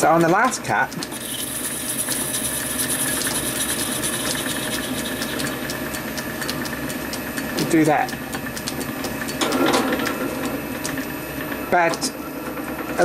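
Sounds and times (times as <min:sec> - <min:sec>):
metal lathe motor whine: 0:01.1 - 0:07.6
faint ticks of cutting tool: 0:04.2 - 0:09.4.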